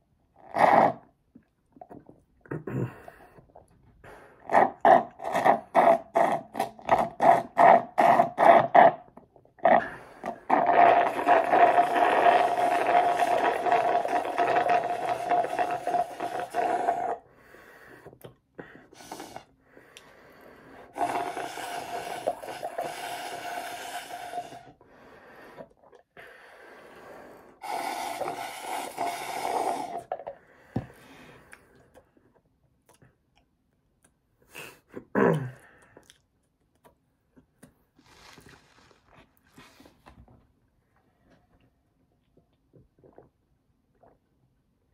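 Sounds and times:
person slurping milkshake: 0.4s - 2.1s, 4.4s - 17.2s, 18.8s - 19.5s, 20.7s - 24.8s, 26.8s - 30.4s, 37.9s - 40.0s, 42.8s - 44.3s
person breathing: 17.2s - 32.0s.

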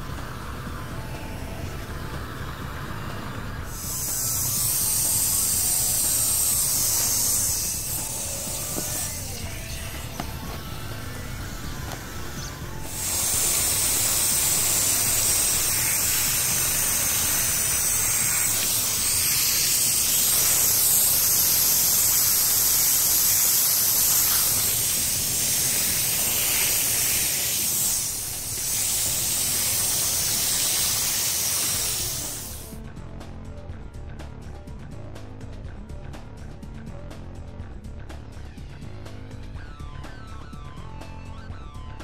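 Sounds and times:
background music: 0.0s - 42.0s
hose spraying water on wall: 0.1s - 32.8s.

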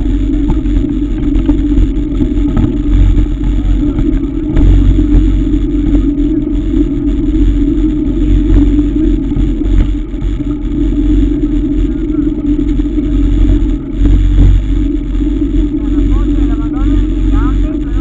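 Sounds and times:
wind rumble on microphone: 0.0s - 18.0s.

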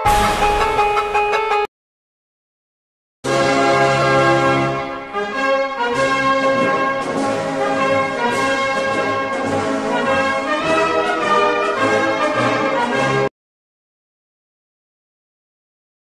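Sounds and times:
instrumental music: 0.0s - 1.7s, 3.3s - 13.3s.

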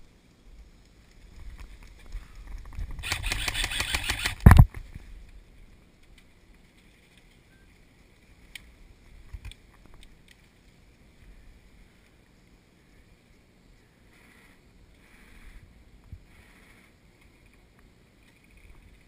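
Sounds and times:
faint sharp clicks and knocks: 8.1s - 10.8s.

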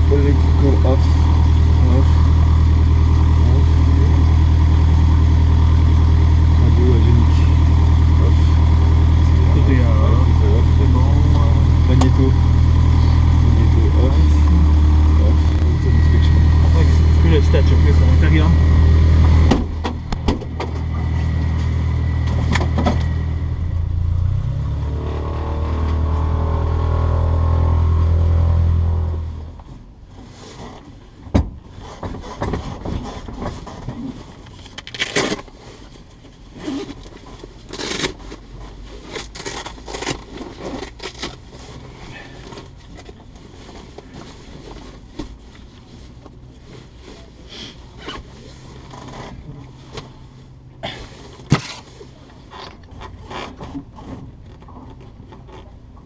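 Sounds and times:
loud low mechanical hum: 0.0s - 26.9s.

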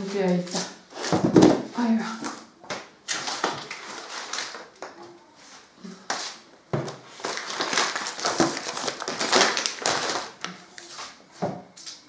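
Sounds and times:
plastic wrappers rustling: 3.1s - 5.0s, 6.8s - 11.2s.

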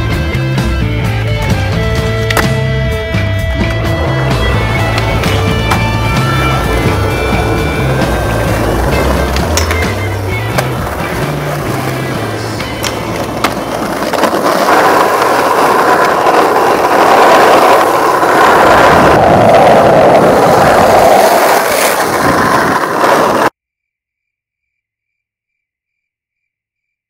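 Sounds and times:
skateboard wheels rolling on asphalt: 0.0s - 23.6s
skateboard clacking on rail: 3.6s - 18.6s.

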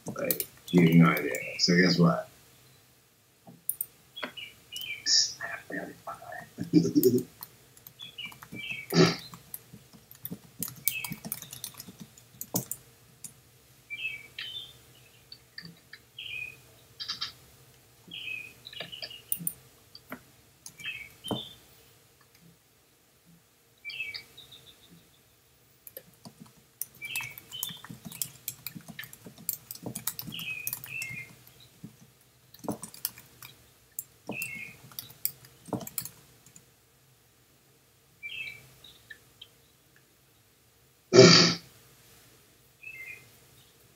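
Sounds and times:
keyboard typing: 0.0s - 1.5s, 3.6s - 3.9s, 6.7s - 13.4s, 18.8s - 21.5s, 25.9s - 36.6s.

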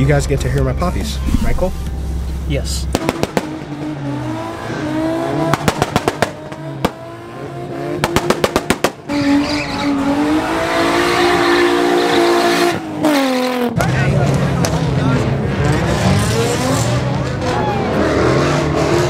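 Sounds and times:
car engine revving: 2.8s - 19.0s
exhaust pops: 2.9s - 3.9s, 5.4s - 7.0s, 8.0s - 9.2s.

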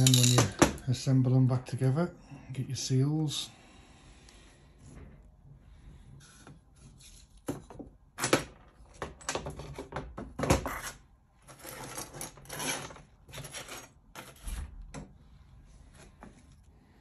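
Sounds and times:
metal parts clinking on workbench: 0.0s - 0.8s.

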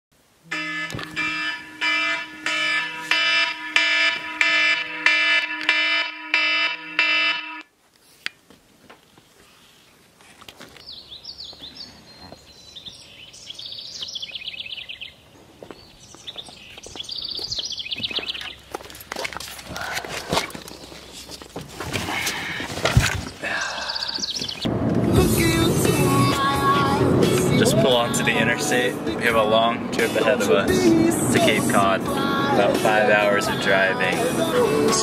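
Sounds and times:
phone alarm beeping: 0.5s - 7.7s
birds chirping: 10.7s - 19.1s, 22.2s - 24.7s.

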